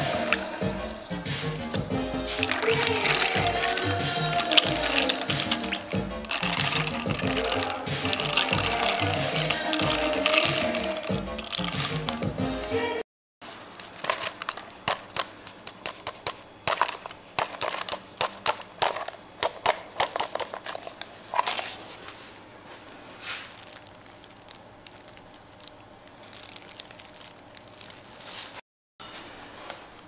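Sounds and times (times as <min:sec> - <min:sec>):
drink pouring: 0:00.0 - 0:12.4, 0:23.4 - 0:28.2
ice cubes cracking in a glass: 0:02.3 - 0:12.3, 0:13.9 - 0:19.2, 0:23.4 - 0:28.5.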